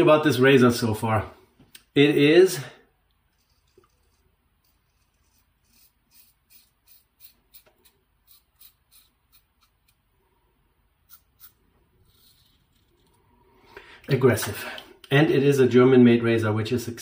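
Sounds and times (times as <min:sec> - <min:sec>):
razor scraping stubble: 0:03.3 - 0:10.0, 0:11.0 - 0:13.2.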